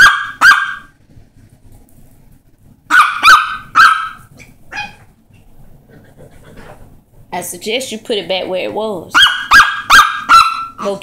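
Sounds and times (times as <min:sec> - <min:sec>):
small dog yapping: 0:00.0 - 0:00.9, 0:02.9 - 0:05.1, 0:09.1 - 0:11.0.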